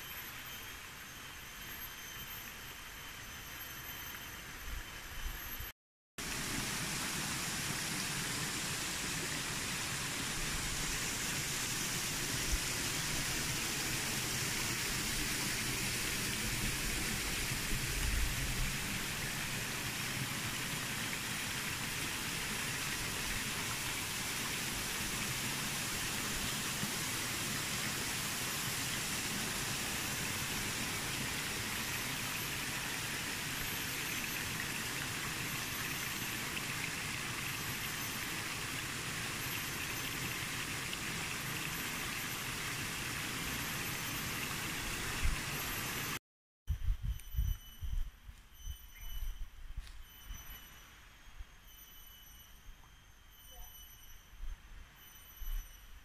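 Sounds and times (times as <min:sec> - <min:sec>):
forest ambience hiss: 0:00.0 - 0:46.2, 0:46.8 - 0:56.0
faint high tone: 0:51.7 - 0:56.0.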